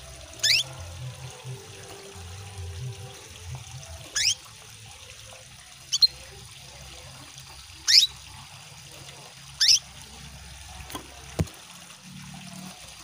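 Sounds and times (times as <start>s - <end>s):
water trickling: 0.0s - 13.0s
canary chirps: 0.4s - 0.8s, 4.1s - 4.4s, 5.9s - 6.2s, 7.8s - 8.2s, 9.6s - 9.9s.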